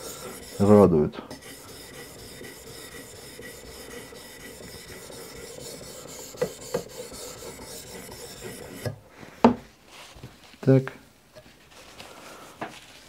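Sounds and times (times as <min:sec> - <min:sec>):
sharpening stone scraping knife: 0:00.0 - 0:09.0.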